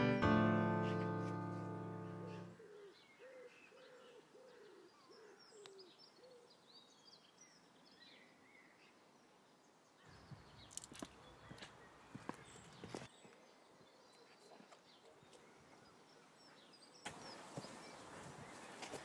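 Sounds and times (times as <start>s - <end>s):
piano tune: 0.0s - 2.6s
small birds chirping: 0.8s - 19.0s
low cooing bird call: 2.2s - 6.6s.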